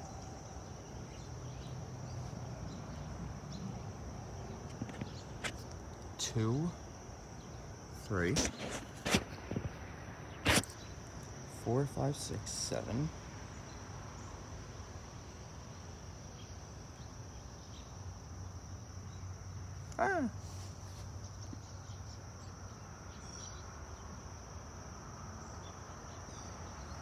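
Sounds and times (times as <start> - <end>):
crickets trilling: 0.0 - 27.0
short voice-like falling sound: 19.9 - 20.4.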